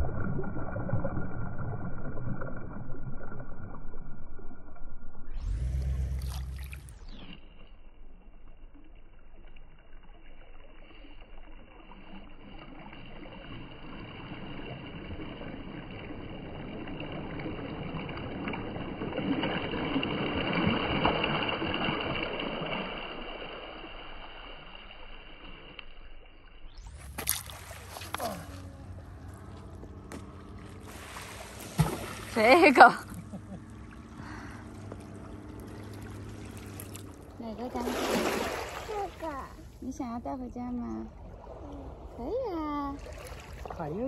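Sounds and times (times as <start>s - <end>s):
low rumble: 0.0s - 20.2s, 26.4s - 44.0s
waves lapping on pebbles: 26.9s - 32.9s, 34.2s - 40.0s.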